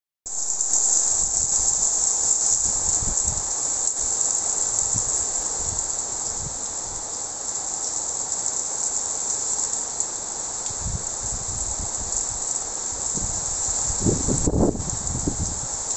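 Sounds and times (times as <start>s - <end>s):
heavy rain hissing: 0.3s - 15.9s
wind buffeting microphone: 2.6s - 3.6s, 10.7s - 12.4s, 13.0s - 15.9s.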